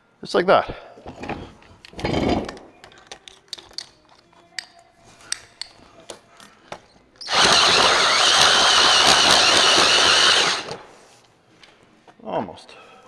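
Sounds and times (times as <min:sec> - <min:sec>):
hole saw screeching through metal: 0:07.2 - 0:10.8.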